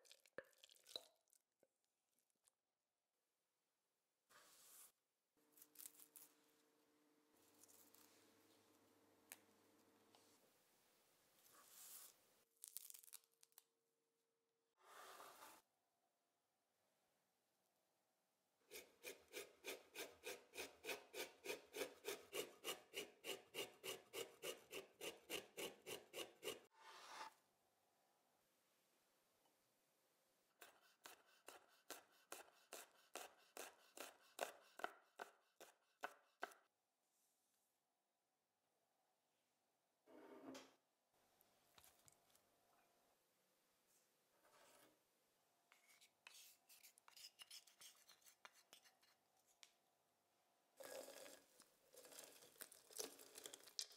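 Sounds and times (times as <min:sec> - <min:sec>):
herb leaves rustling and tearing: 0:12.6 - 0:13.2.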